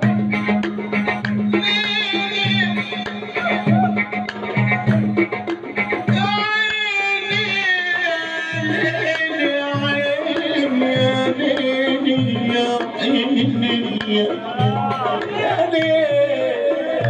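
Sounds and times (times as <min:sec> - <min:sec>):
drum and tambourine beat: 0:00.0 - 0:17.0
man chanting: 0:06.2 - 0:17.0.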